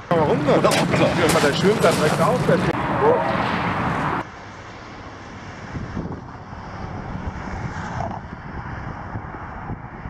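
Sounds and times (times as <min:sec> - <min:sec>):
low outdoor rumble: 0:00.0 - 0:04.2
wind buffeting microphone: 0:05.6 - 0:10.0.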